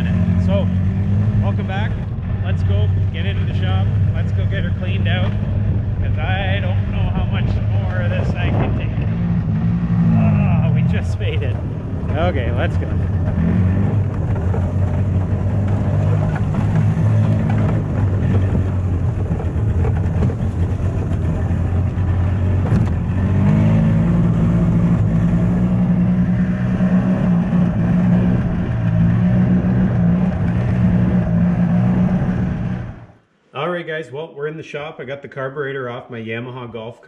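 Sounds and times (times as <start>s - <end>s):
golf cart engine running: 0.0s - 33.2s.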